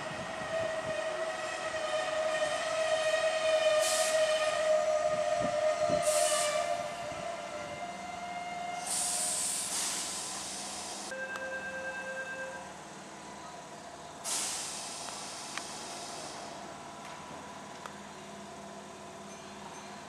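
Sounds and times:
electric train whine: 0:00.0 - 0:20.0
compressed air hissing: 0:03.8 - 0:04.3, 0:06.0 - 0:06.7, 0:08.8 - 0:11.1, 0:14.2 - 0:16.6.

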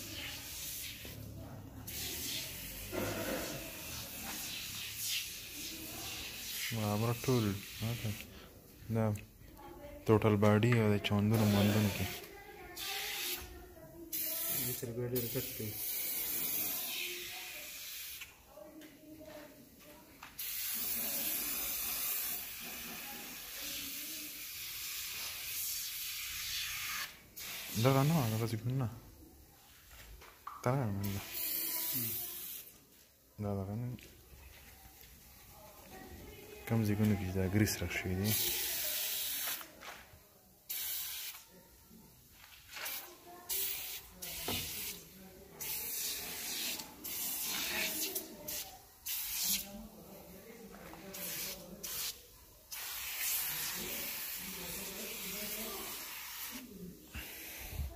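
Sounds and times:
aerosol can spraying hiss: 0:00.0 - 0:08.3, 0:11.3 - 0:13.5, 0:14.1 - 0:18.3, 0:20.2 - 0:28.6, 0:31.0 - 0:32.8, 0:38.3 - 0:39.7, 0:40.6 - 0:41.5, 0:42.2 - 0:50.0, 0:50.8 - 0:57.9.

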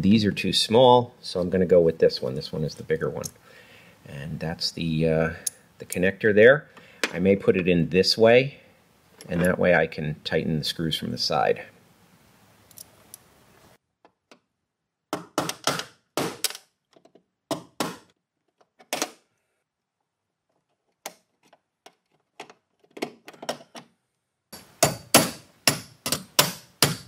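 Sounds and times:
hammer striking metal: 0:24.6 - 0:27.0.

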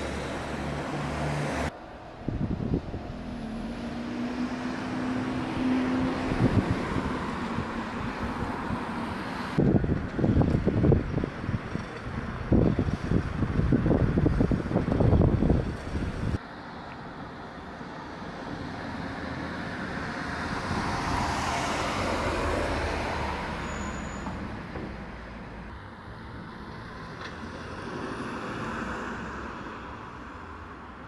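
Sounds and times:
wind buffeting microphone: 0:02.1 - 0:03.4, 0:05.4 - 0:16.4
vehicle driving past: 0:03.1 - 0:07.6.

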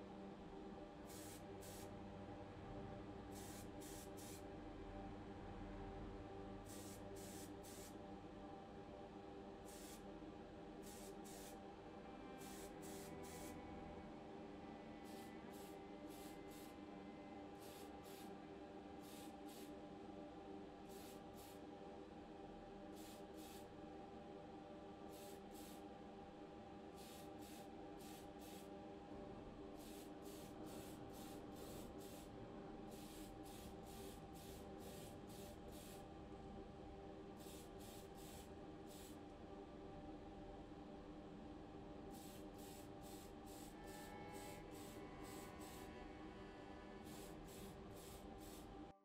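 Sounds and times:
steady low hum: 0:00.0 - 0:49.0
spray can hissing bursts: 0:01.1 - 0:01.8, 0:03.4 - 0:04.4, 0:06.7 - 0:07.9, 0:12.4 - 0:13.5, 0:15.1 - 0:16.7, 0:19.0 - 0:19.7, 0:29.8 - 0:32.3, 0:32.9 - 0:36.0, 0:37.4 - 0:39.2, 0:42.2 - 0:45.8, 0:47.0 - 0:48.7.

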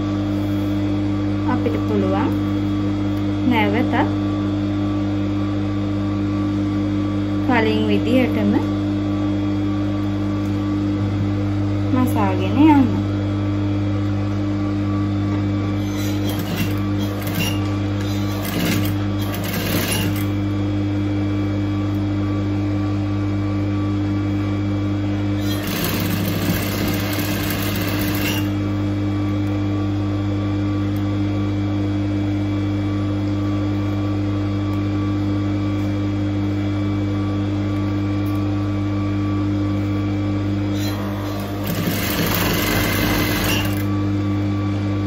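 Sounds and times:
sewing machine running: 0:15.8 - 0:20.4, 0:25.4 - 0:28.6, 0:40.8 - 0:43.9.

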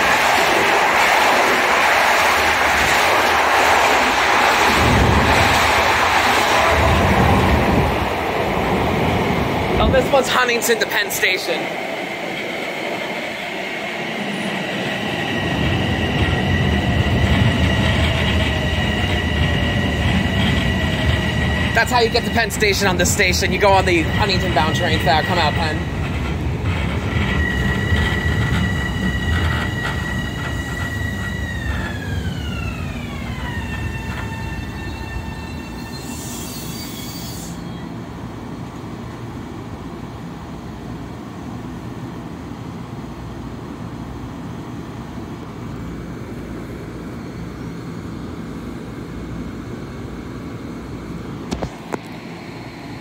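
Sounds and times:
train cars rumbling: 0:00.0 - 0:38.0
low train hum: 0:00.0 - 0:53.0.

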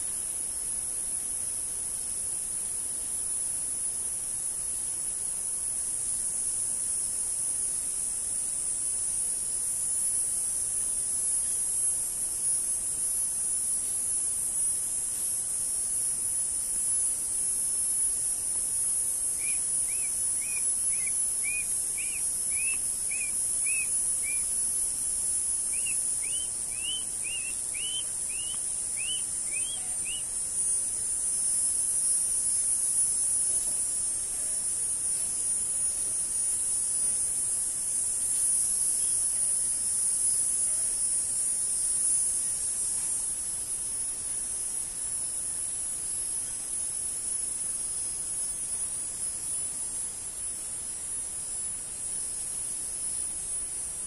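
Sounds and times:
steady high-pitched hiss: 0:00.0 - 0:54.0
bird chirping: 0:19.4 - 0:24.5, 0:25.7 - 0:30.3.

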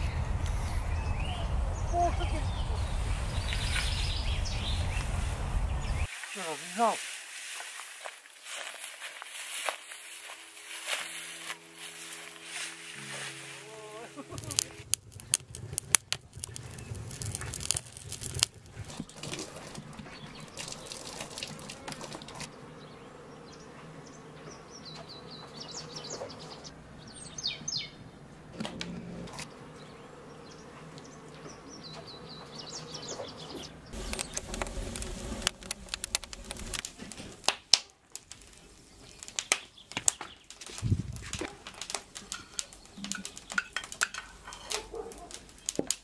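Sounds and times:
small birds chirping: 0:00.0 - 0:07.0, 0:09.3 - 0:28.5, 0:29.4 - 0:36.8, 0:38.4 - 0:41.4, 0:42.2 - 0:43.8
scattered clicks and crackles: 0:14.2 - 0:22.5, 0:34.0 - 0:46.0.

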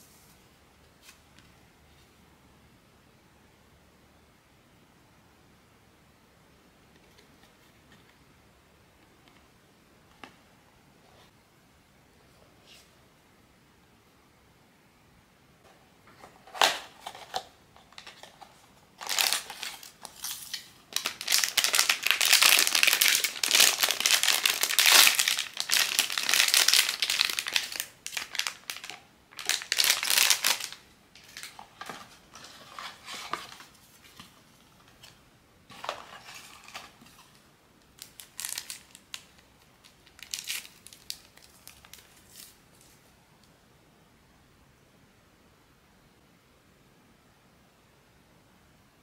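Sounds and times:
packaging crinkling and tearing: 0:16.5 - 0:33.7, 0:35.7 - 0:43.0.

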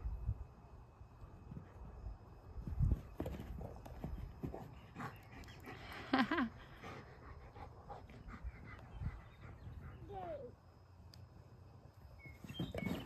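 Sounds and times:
dog panting: 0:06.7 - 0:10.1.

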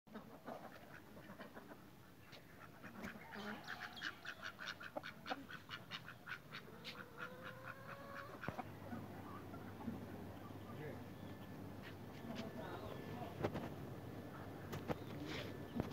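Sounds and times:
fowl calling: 0:00.1 - 0:11.0.

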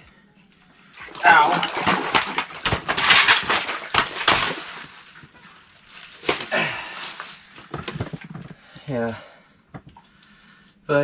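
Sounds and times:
fish thrashing and splashing: 0:01.0 - 0:05.4.

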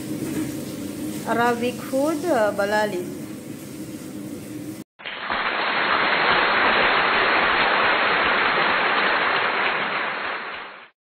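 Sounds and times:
steady hiss: 0:03.2 - 0:10.8.

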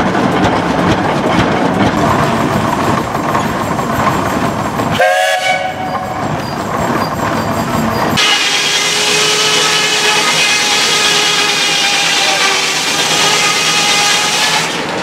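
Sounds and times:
steam hissing: 0:02.0 - 0:14.9
steam whistle: 0:05.0 - 0:06.2, 0:08.2 - 0:14.9.

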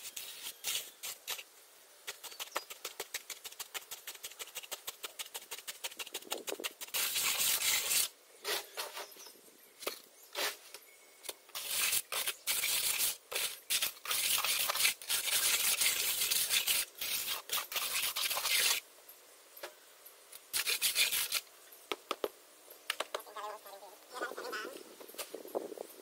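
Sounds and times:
trowel scraping wet cement: 0:00.0 - 0:09.1, 0:09.8 - 0:10.6, 0:11.5 - 0:18.8, 0:20.5 - 0:21.4.

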